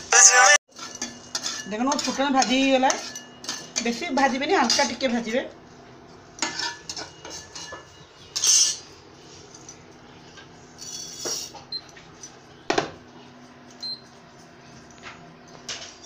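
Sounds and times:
spatula scraping pan: 0:00.7 - 0:05.2, 0:06.4 - 0:08.9
spatula clinking on bowl: 0:00.8 - 0:05.0, 0:06.4 - 0:08.8.

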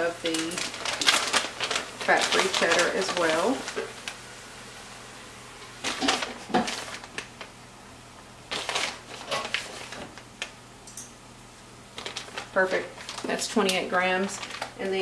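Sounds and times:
plastic bag crinkling: 0:00.0 - 0:04.2, 0:05.8 - 0:07.6, 0:08.5 - 0:10.6, 0:11.9 - 0:15.0.

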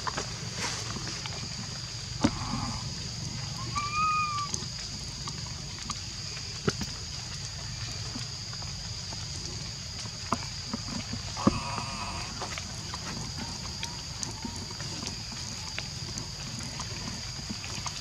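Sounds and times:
high insect drone: 0:00.0 - 0:18.0
baby monkey coo call: 0:03.4 - 0:04.7.

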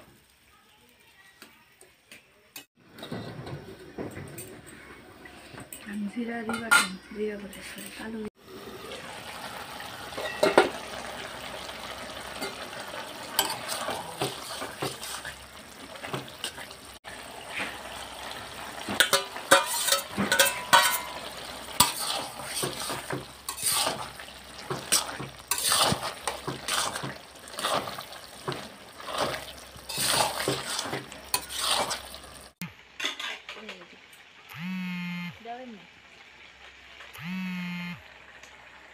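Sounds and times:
low frying sizzle: 0:00.0 - 0:38.9
metal spoon scraping metal pot: 0:13.4 - 0:15.3, 0:19.0 - 0:24.1, 0:24.8 - 0:28.1, 0:29.0 - 0:32.3.

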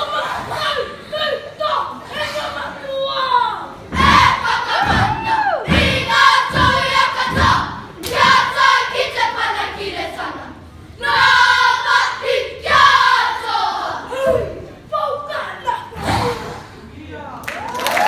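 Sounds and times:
group chanting in unison: 0:03.9 - 0:14.6.

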